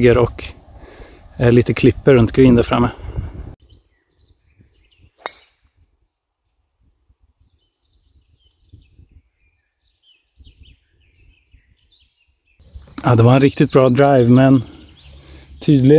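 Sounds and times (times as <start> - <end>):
faint birdsong: 3.5 - 15.9
golf club striking ball: 5.2 - 5.6.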